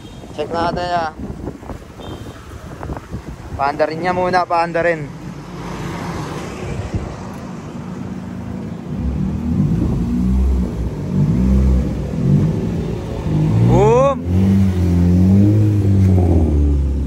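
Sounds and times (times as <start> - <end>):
passing vehicle: 0.0 - 17.0
car engine revving: 8.6 - 17.0.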